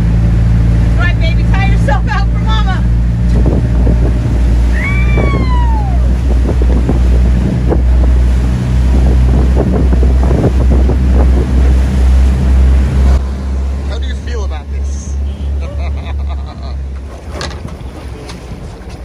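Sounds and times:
wind buffeting microphone: 0.0 - 13.8
boat engine humming: 0.0 - 19.0
water splashing: 0.0 - 19.0.

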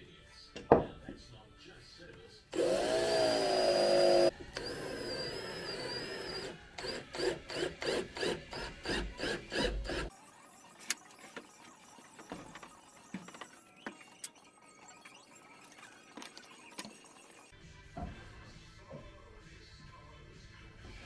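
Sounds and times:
workshop tool whine: 2.5 - 17.5.

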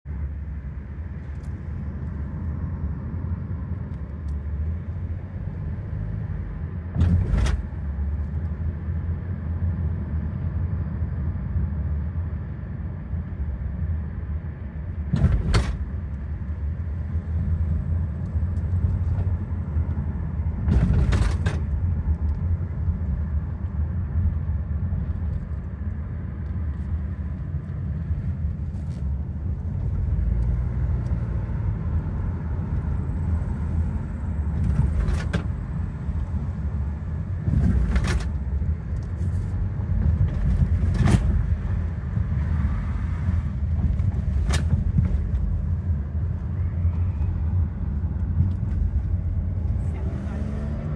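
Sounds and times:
car road rumble: 0.0 - 50.9
car thumping over speed bumps: 6.9 - 7.8, 15.0 - 16.0, 20.6 - 21.8, 43.6 - 45.7.

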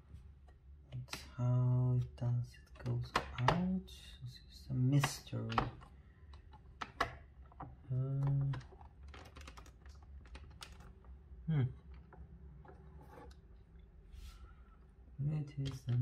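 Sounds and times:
man humming: 11.5 - 11.8.

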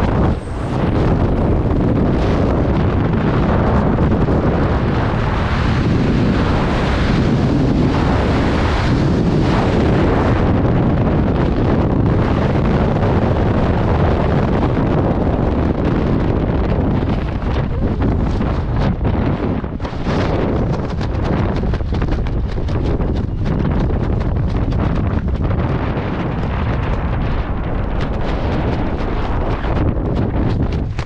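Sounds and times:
freefall wind buffeting microphone: 0.0 - 31.0.

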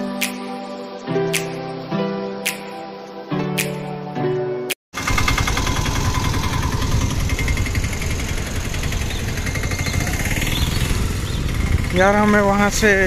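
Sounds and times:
auto-rickshaw engine chugging: 5.0 - 13.0.

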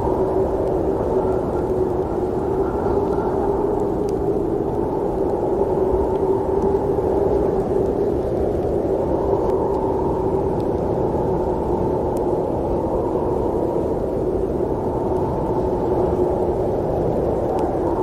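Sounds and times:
low snowstorm wind: 0.0 - 18.0.

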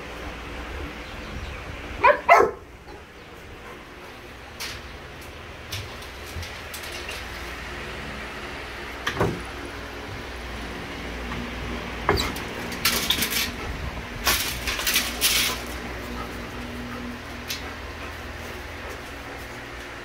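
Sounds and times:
steady low hum: 0.0 - 20.0
hard parts clattering: 4.6 - 7.8, 12.0 - 16.6.

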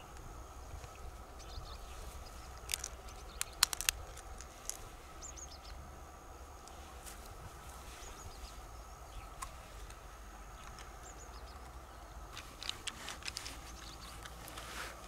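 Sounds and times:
faint bird chirps: 0.0 - 3.7, 5.1 - 5.8, 7.6 - 12.3, 13.4 - 14.4
mussel shells clicking: 2.5 - 4.9, 11.6 - 14.6.

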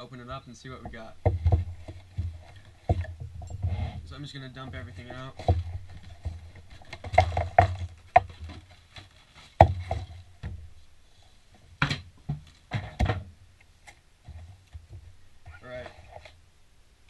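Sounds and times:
paper rustling: 3.8 - 10.3.

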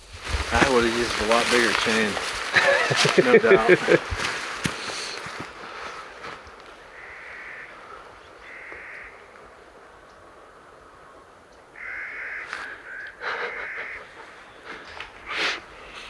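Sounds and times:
bird harsh crow-like calls: 6.8 - 9.6, 10.9 - 15.3.

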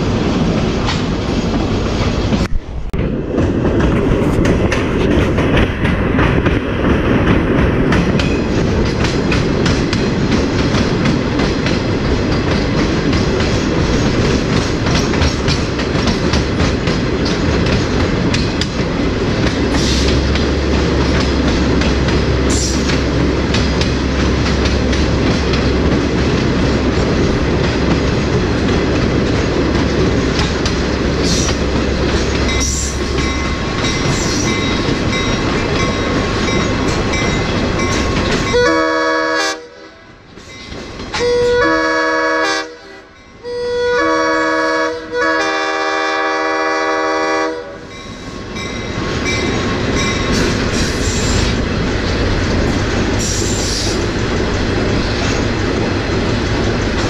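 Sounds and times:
train wheels rumbling on rail: 0.0 - 57.0
train horn blasts: 38.5 - 40.1, 41.2 - 47.9.

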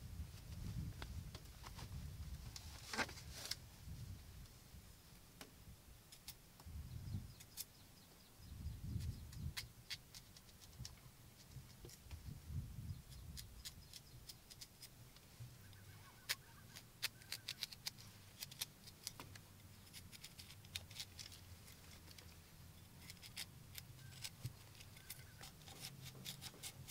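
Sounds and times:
rustle of person sitting: 0.1 - 5.5
knife scraping cucumber skin: 16.3 - 19.1, 23.0 - 26.9.

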